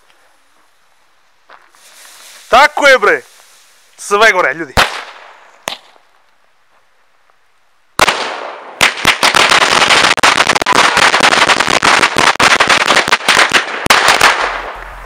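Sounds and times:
rapid chain of firecracker bangs: 4.8 - 6.0, 8.0 - 15.0.

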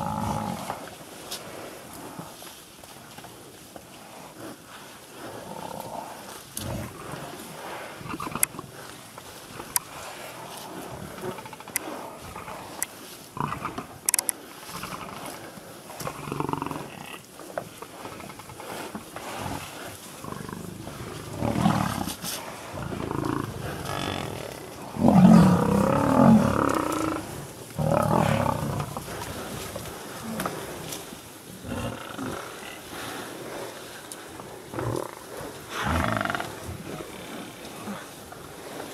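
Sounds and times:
lions growling: 0.0 - 0.9, 4.4 - 8.9, 14.8 - 17.2, 18.0 - 31.0, 31.6 - 33.8, 34.4 - 38.1.

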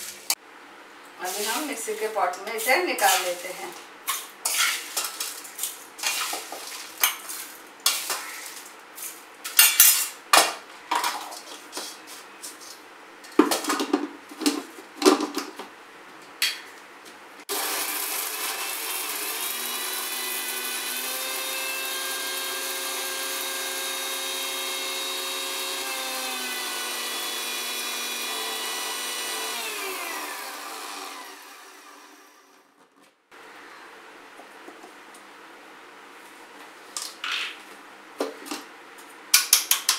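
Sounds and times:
mixer grinder motor whining: 17.5 - 32.6.

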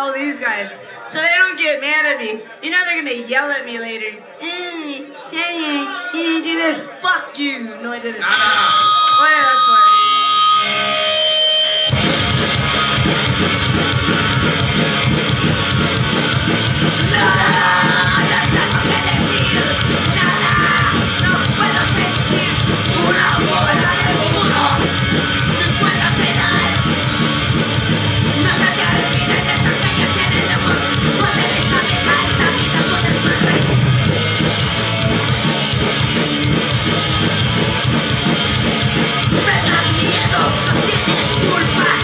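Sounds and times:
punk band playing: 8.3 - 42.0
shouted vocals: 17.0 - 27.2, 28.3 - 33.8, 39.3 - 42.0.

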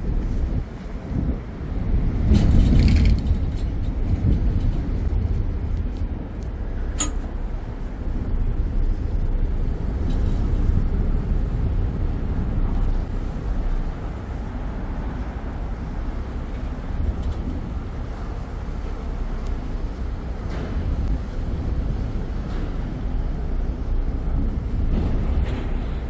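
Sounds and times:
ferry engine rumbling: 0.0 - 26.0
sharp high click: 7.0 - 7.3.

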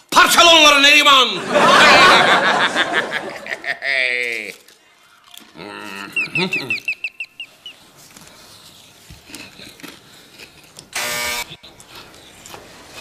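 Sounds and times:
doorbell buzzer: 11.0 - 11.5.

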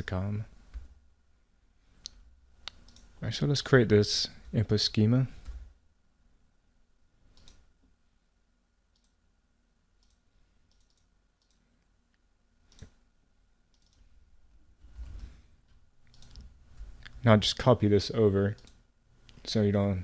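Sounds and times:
faint computer clicks: 16.0 - 17.2.

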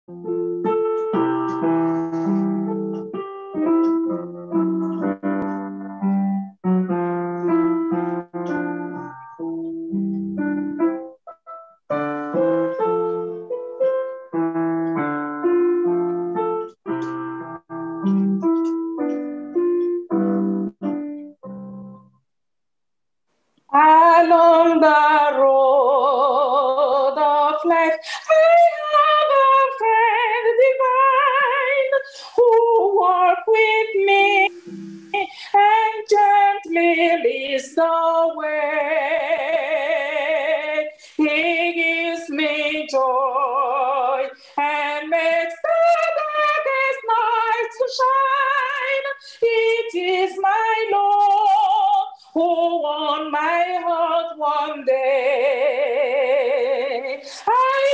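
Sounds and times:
woman singing a hymn: 23.7 - 57.9.

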